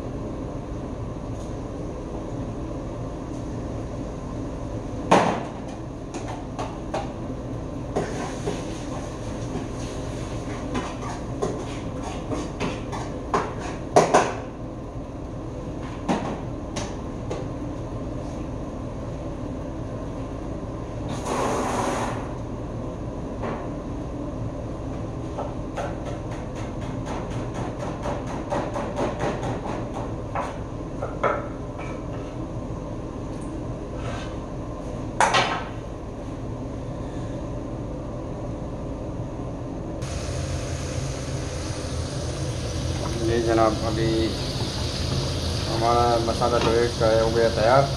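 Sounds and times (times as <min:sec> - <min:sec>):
steady hum: 0:00.0 - 0:26.7, 0:29.9 - 0:47.9
knife chopping on wooden board: 0:25.8 - 0:30.6.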